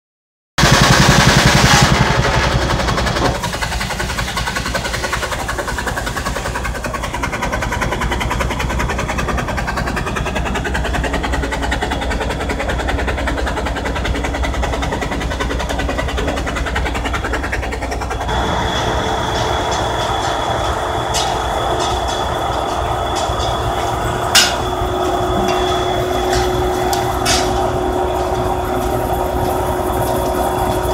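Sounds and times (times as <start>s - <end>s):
steam sawmill mechanical drone: 0.6s - 30.9s
thin steady whine: 18.0s - 30.9s
sharp knocks: 21.1s - 28.4s.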